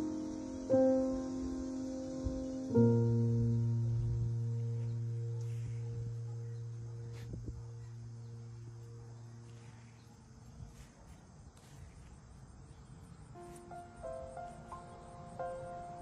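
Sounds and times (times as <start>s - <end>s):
soft background music: 0.0s - 10.9s, 13.2s - 16.0s
high insect buzz: 0.0s - 16.0s.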